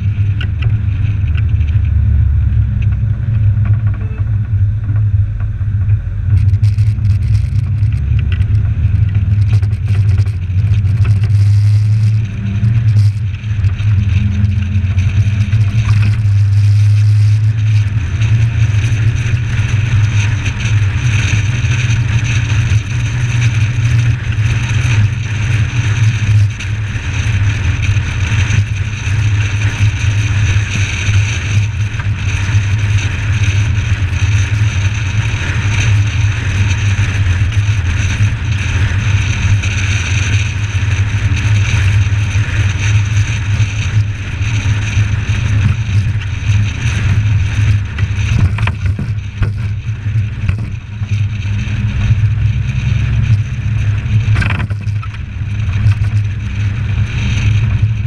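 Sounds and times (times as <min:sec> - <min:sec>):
car engine cruising: 0:00.0 - 0:58.0
road and wind noise: 0:00.0 - 0:58.0.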